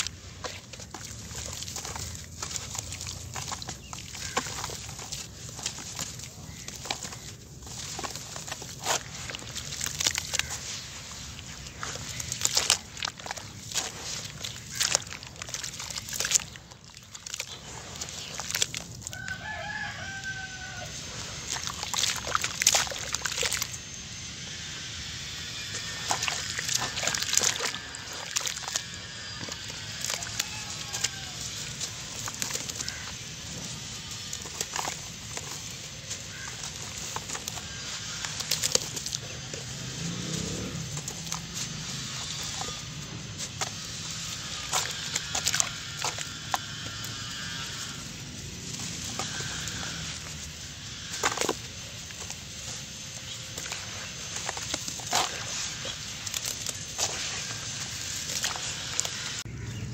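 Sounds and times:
hands squelching wet cement mix: 0.0 - 59.9
chicken calling: 19.2 - 21.1, 28.8 - 31.7.

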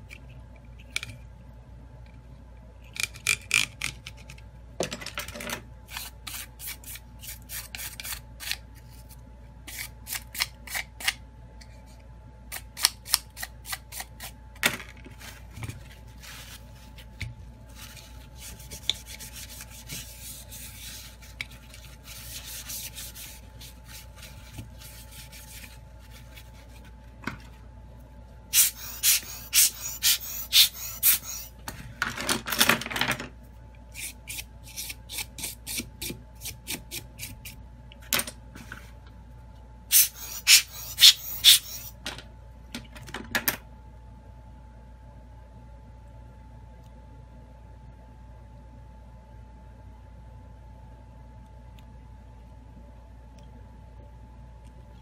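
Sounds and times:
soft rubbing: 15.1 - 27.7.

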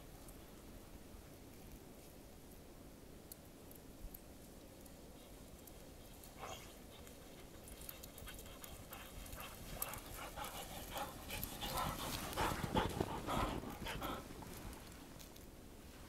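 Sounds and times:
paws running through snow: 6.0 - 16.0
dog panting: 6.3 - 14.9.

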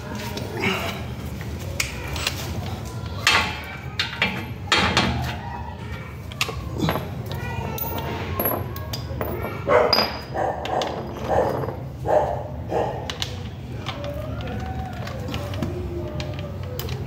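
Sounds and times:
dog barking: 9.7 - 13.1.

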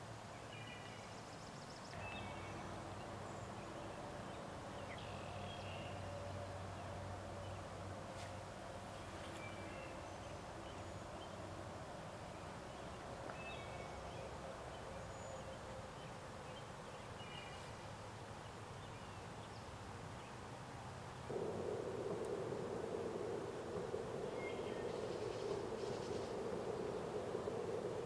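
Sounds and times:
steady low noise: 21.3 - 28.0.

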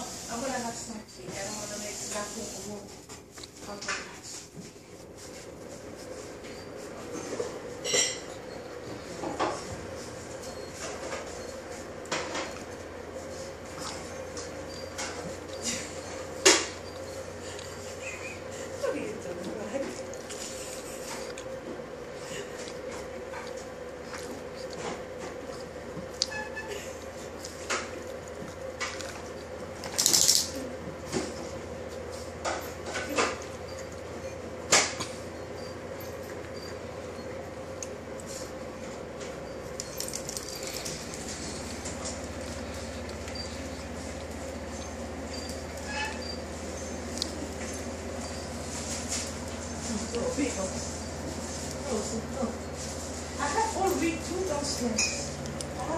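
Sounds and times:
steady hum: 0.0 - 55.9
dishes and cups clinking: 7.1 - 9.6, 54.9 - 55.4
dog claws clicking on floor: 29.8 - 30.6, 39.8 - 42.2.

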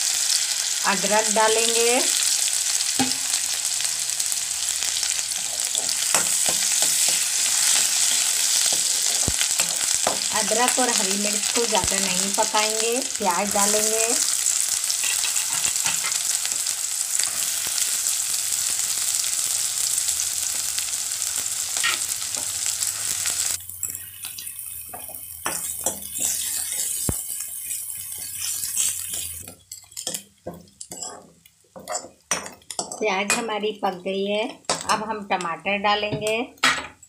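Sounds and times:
onions sizzling in oil: 0.0 - 35.4
spoon scraping a pan: 4.9 - 11.6, 13.5 - 18.0, 21.4 - 33.5.

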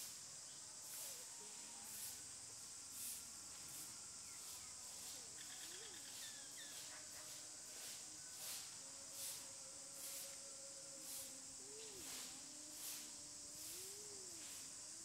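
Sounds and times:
insect chorus drone: 0.0 - 15.0
faint bird chirps: 4.2 - 7.4.

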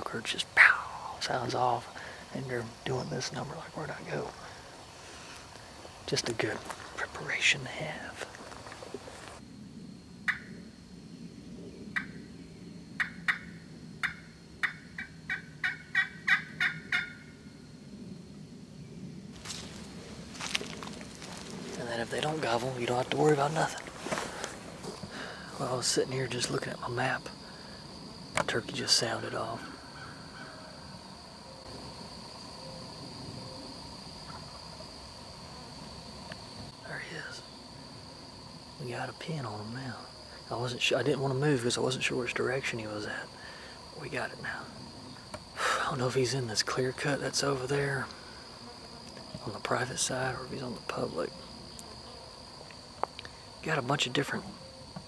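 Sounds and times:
high-pitched insect drone: 0.0 - 55.0
turkey call yelping: 13.0 - 17.3.

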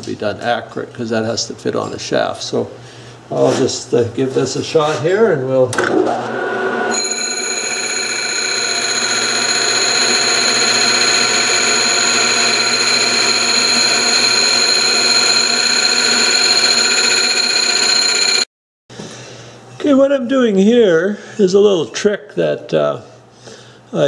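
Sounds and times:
metal lathe cutting: 6.3 - 18.5
cutting tool squealing: 8.0 - 18.4.

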